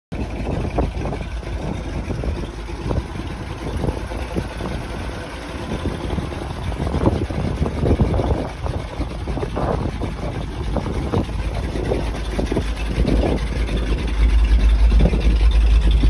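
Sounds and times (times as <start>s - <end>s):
truck engine idling: 0.1s - 16.0s.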